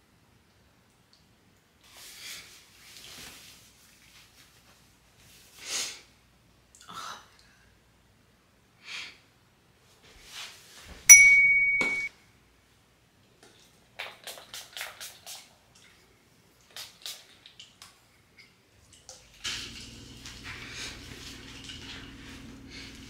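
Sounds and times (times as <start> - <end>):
bell-like notification ding: 11.1 - 12.1.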